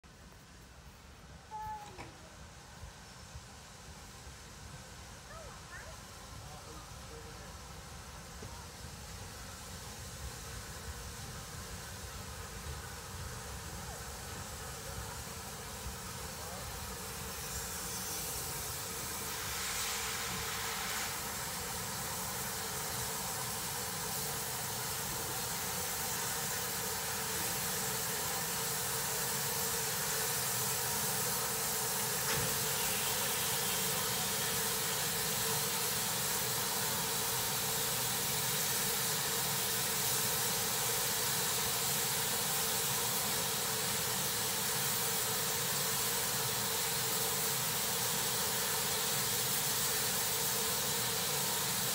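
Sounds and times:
steam locomotive hissing steam: 0.0 - 51.9.

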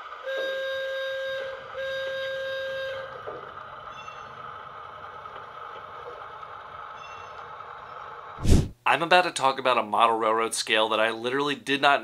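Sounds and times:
running hum with hiss: 0.0 - 11.4
train horn: 0.2 - 3.3.

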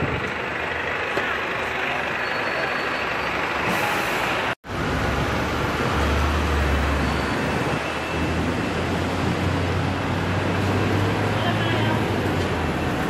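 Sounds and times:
deep engine rumble: 0.0 - 6.8
bus passing close: 0.0 - 13.0
steady traffic: 0.0 - 13.0.

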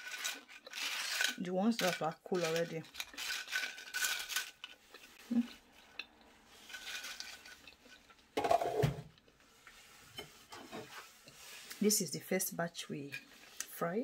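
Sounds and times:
chips rustling on a china plate: 0.0 - 8.4
kitchenware clattering: 6.7 - 9.1.

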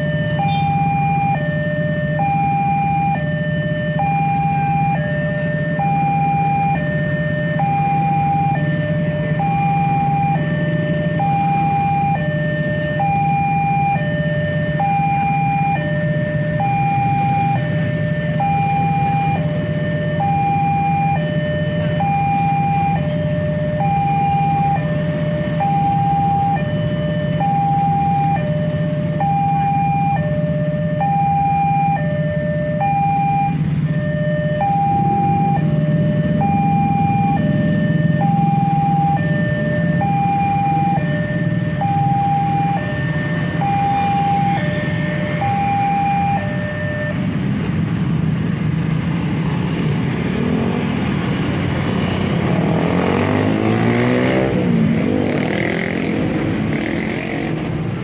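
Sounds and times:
level crossing alarm tones: 0.0 - 47.4
motorbikes revving away: 32.8 - 58.0.

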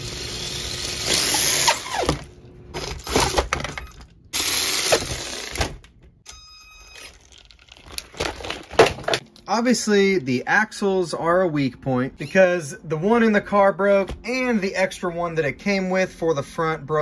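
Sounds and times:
electric motor revving with gear whine: 0.0 - 2.2.

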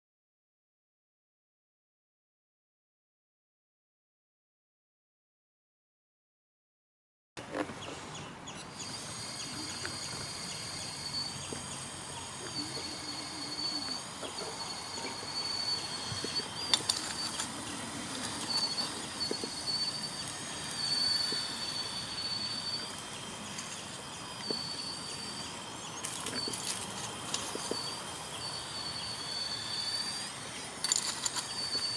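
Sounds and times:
model excavator motor whining: 7.4 - 31.9.

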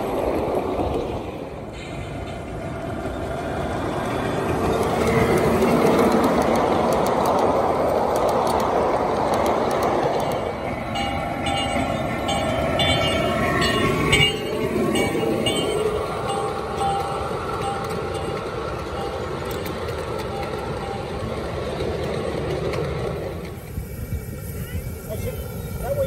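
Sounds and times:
miniature train rolling on rails: 0.0 - 26.0
wheel clicks over rail joints: 3.8 - 23.6.

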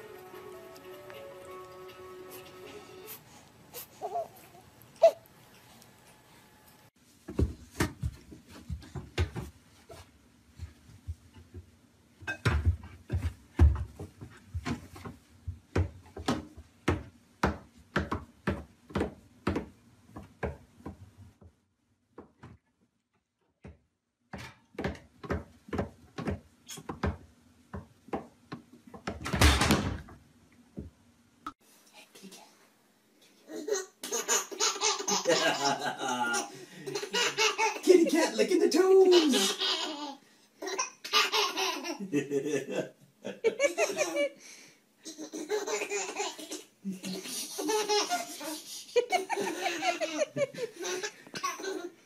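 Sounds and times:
baby laughing: 33.5 - 38.1, 39.0 - 42.3, 43.4 - 44.4, 45.0 - 52.0.

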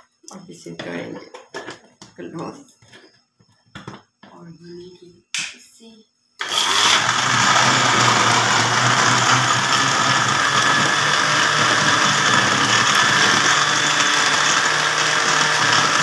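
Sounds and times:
blender motor running: 6.4 - 16.0.

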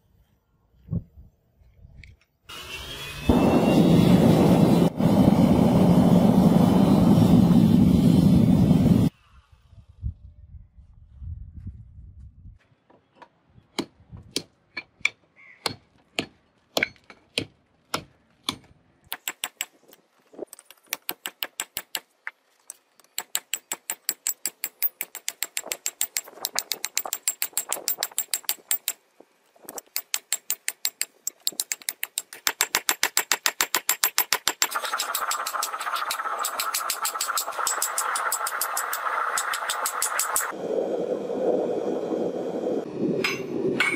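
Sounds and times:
steady rushing noise: 34.8 - 43.9.

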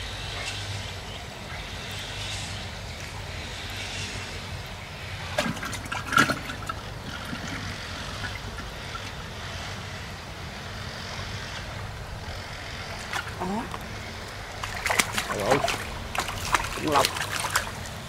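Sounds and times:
faint water sounds: 0.0 - 18.0
low motor hum: 0.0 - 18.0
small splashes in water: 12.9 - 18.0.

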